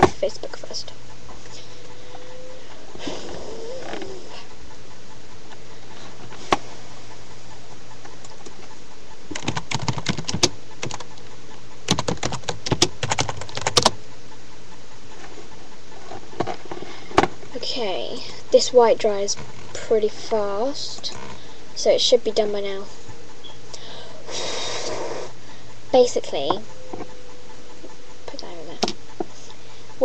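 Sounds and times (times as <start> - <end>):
steady background hiss: 0.0 - 30.0
computer keyboard typing: 9.3 - 11.2, 11.9 - 14.0.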